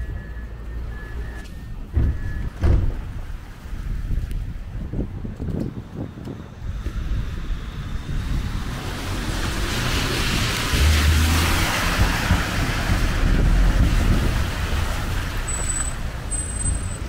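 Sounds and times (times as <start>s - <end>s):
tram passing on wet rails: 6.1s - 17.0s.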